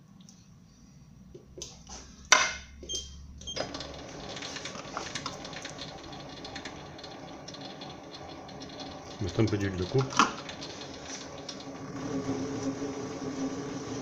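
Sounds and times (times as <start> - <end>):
benchtop lathe ticking clatter: 3.6 - 11.8
sharp mechanical clicks: 3.8 - 11.7.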